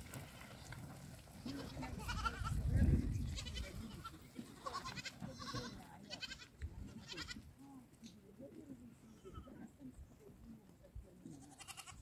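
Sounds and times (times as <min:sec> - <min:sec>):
goats bleating: 0:01.4 - 0:02.6, 0:03.2 - 0:07.4, 0:11.3 - 0:12.0.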